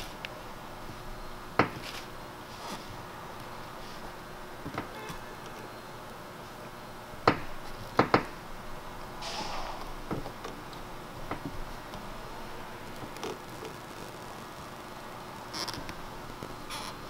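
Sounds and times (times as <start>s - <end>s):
tape rustling: 1.6s - 6.6s, 12.8s - 14.8s.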